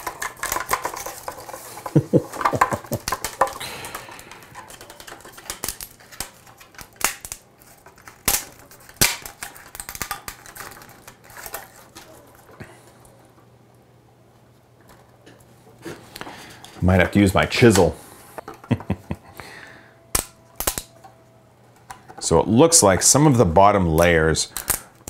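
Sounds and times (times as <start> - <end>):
loud plastic cracks: 0.0 - 1.5, 2.5 - 12.5, 20.1 - 21.0, 24.5 - 25.0
plastic clicking and snapping: 20.1 - 21.1.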